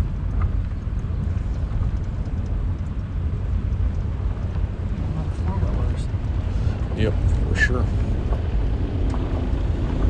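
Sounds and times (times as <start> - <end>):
faint ticks: 0.0 - 4.8
vehicle rumbling on dirt road: 0.0 - 10.0.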